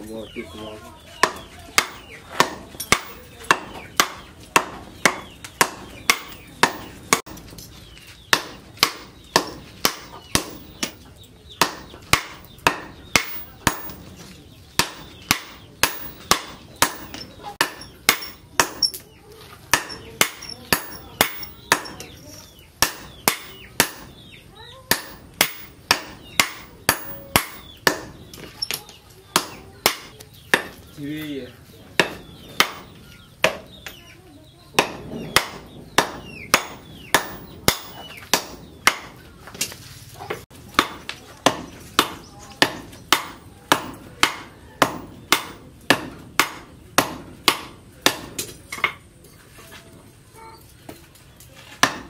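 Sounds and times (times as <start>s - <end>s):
sledgehammer striking hot steel: 11.6s - 14.1s, 14.8s - 19.0s, 19.7s - 22.1s, 22.8s - 24.2s, 24.9s - 28.1s, 34.8s - 39.1s.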